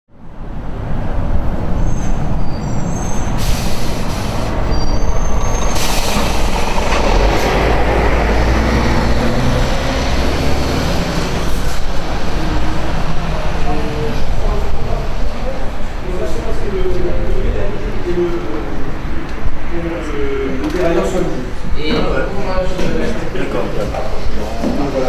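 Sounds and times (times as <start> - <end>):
heavy road traffic rumble: 0.1 - 21.8
high-pitched squeals: 1.7 - 14.4.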